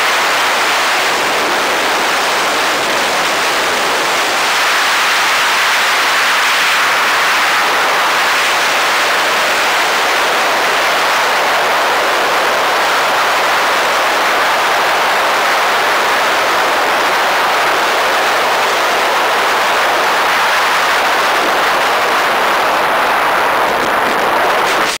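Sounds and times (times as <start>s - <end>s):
rush of air past glider canopy: 0.0s - 25.0s.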